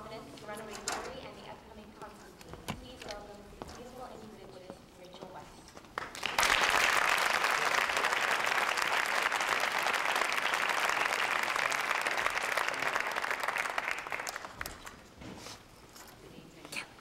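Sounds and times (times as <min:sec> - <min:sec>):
audience applauding: 0:06.0 - 0:15.1.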